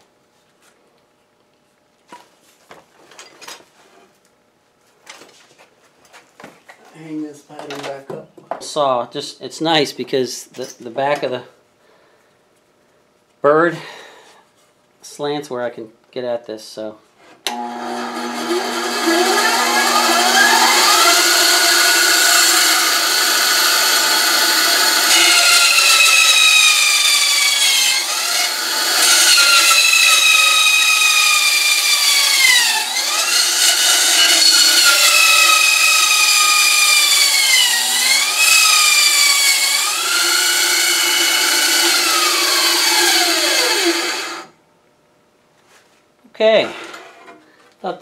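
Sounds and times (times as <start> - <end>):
band saw motor whining: 17.5 - 44.5
saw coasting to a stop: 17.5 - 44.5.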